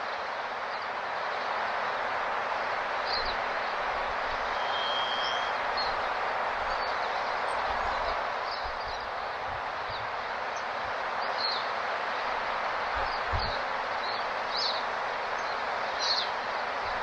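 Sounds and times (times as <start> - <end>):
rushing outdoor noise: 0.0 - 17.0
high bird chirps: 4.5 - 5.5
thin whistle: 4.5 - 5.6.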